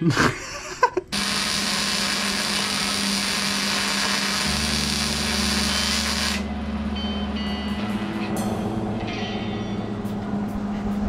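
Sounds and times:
welder arc crackling and hissing: 0:01.1 - 0:06.5.

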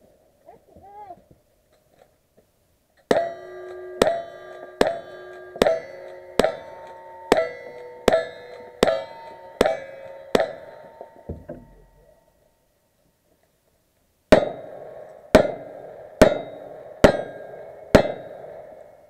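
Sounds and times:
steel target ringing: 0:03.1 - 0:12.6, 0:14.3 - 0:18.8
rifle shots: 0:14.3 - 0:18.6.

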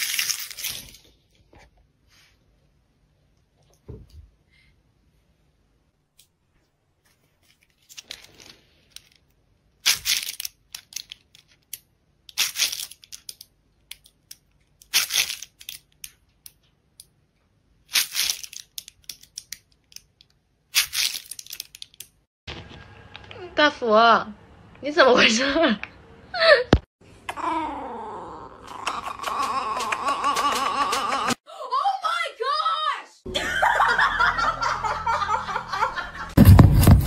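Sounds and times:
wrapper crinkling: 0:00.0 - 0:01.2, 0:07.3 - 0:13.4, 0:17.9 - 0:20.1, 0:20.8 - 0:22.2.

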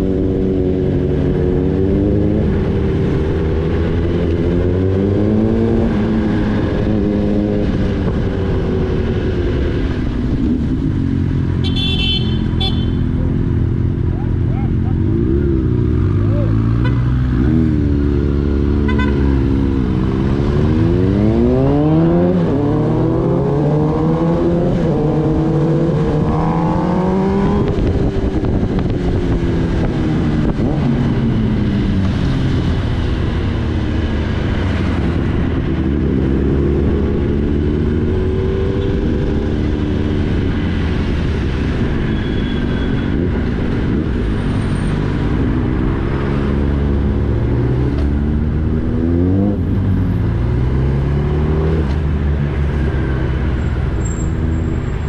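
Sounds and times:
motorcycle engine accelerating: 0:13.2 - 0:55.0
wind noise: 0:20.2 - 0:55.0.

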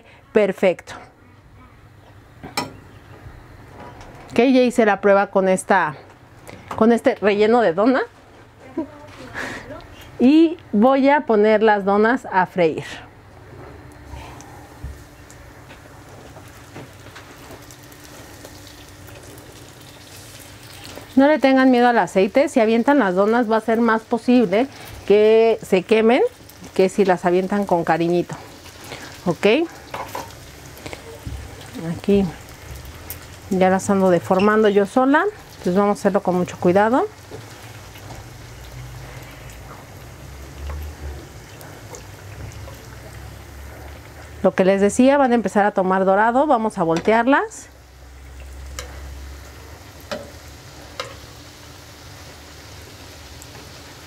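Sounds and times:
oil sizzling and crackling: 0:13.8 - 0:54.0.

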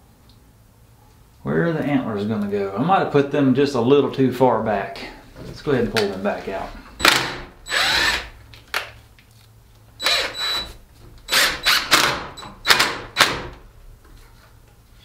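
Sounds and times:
cordless drill boring into wood: 0:07.0 - 0:08.3, 0:10.0 - 0:10.7, 0:11.3 - 0:13.0.

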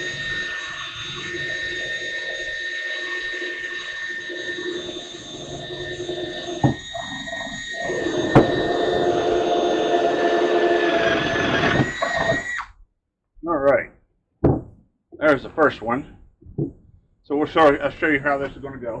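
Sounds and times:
cordless drill boring wood: 0:00.0 - 0:12.7.

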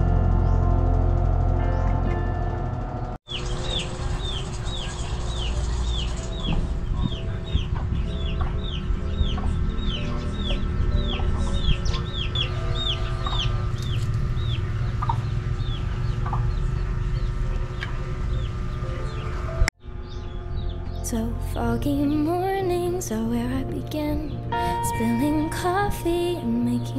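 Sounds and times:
soft background music: 0:00.0 - 0:26.9
chickens clucking: 0:03.3 - 0:19.4
chicks peeping: 0:03.3 - 0:21.0.

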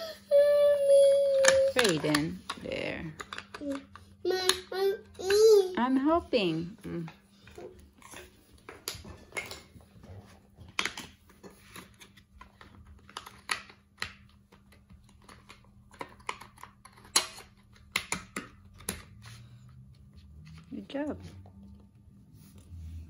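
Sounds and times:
puzzle pieces clicking and tapping: 0:01.4 - 0:04.7.

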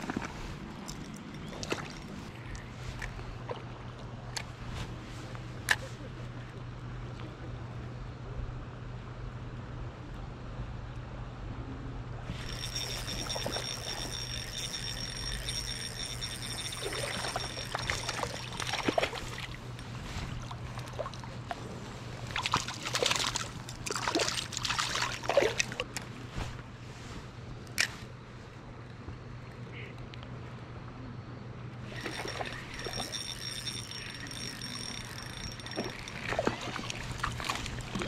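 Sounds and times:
thin high whine: 0:12.2 - 0:20.3, 0:31.8 - 0:38.0
water splashing and dripping: 0:22.3 - 0:25.9.

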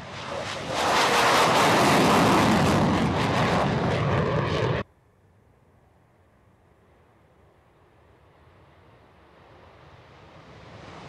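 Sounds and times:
jet engine roar: 0:00.0 - 0:04.9, 0:08.3 - 0:11.0.

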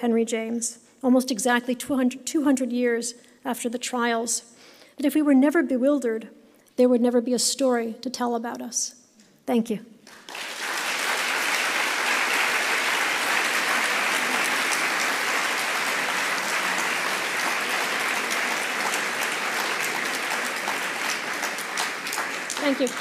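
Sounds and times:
audience applauding: 0:10.1 - 0:23.0.

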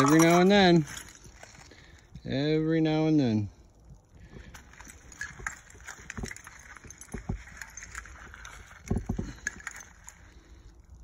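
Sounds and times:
broken glass clinking and crunching: 0:00.0 - 0:01.9, 0:04.5 - 0:10.4.

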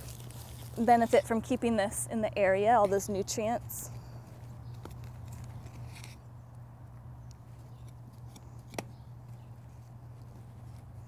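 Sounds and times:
wood chips and soil scraping: 0:00.0 - 0:01.9.

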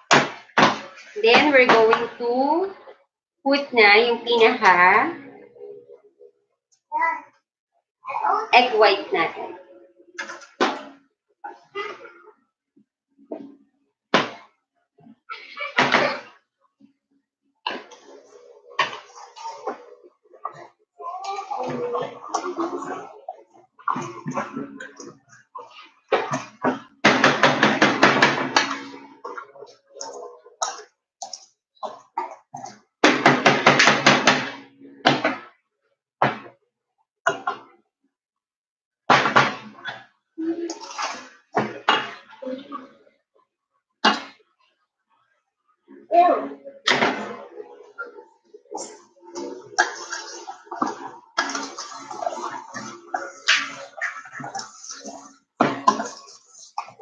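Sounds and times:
bowl scraping: 0:47.1 - 0:57.0.

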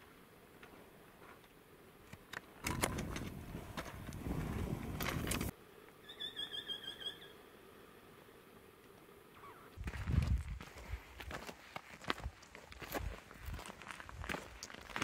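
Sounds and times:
trekking pole clicks: 0:02.0 - 0:04.2
crunching footsteps on rocky trail: 0:02.1 - 0:05.5, 0:09.8 - 0:15.0
wind rumbling on microphone: 0:02.6 - 0:05.5, 0:09.8 - 0:11.1
bird trill: 0:06.0 - 0:07.4.

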